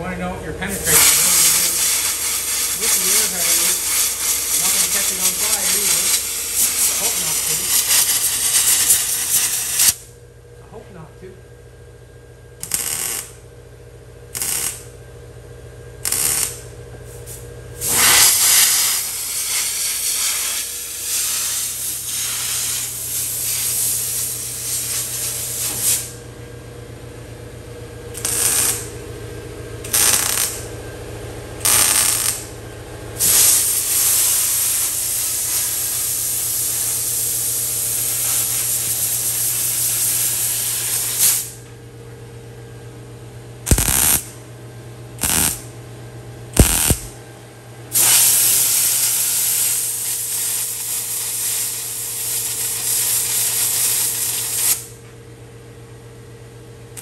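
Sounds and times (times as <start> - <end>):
steady low hum: 0.0 - 57.0
welder stitch welding bursts: 0.7 - 10.0, 12.6 - 13.4, 14.3 - 14.9, 16.0 - 26.2, 28.2 - 28.9, 29.9 - 30.6, 31.6 - 32.5, 33.2 - 41.6, 43.7 - 44.3, 45.2 - 45.6, 46.6 - 47.1, 47.9 - 54.9
air blow gun hissing: 0.8 - 10.0, 16.1 - 26.1, 33.2 - 41.5, 43.7 - 44.2, 45.2 - 45.6, 46.6 - 47.1, 48.0 - 54.8.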